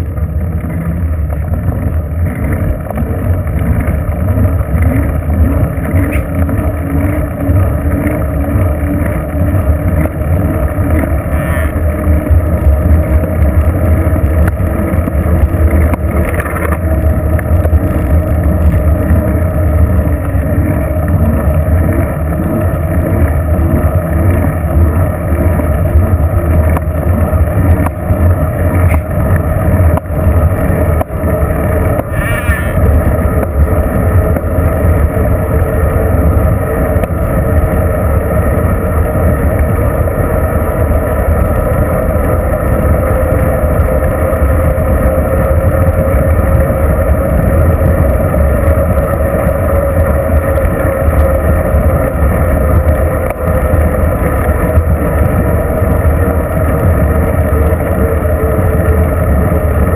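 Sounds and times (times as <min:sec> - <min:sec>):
tyres rolling on pavement: 0:00.0 - 0:59.9
wind buffeting microphone: 0:00.0 - 0:59.9.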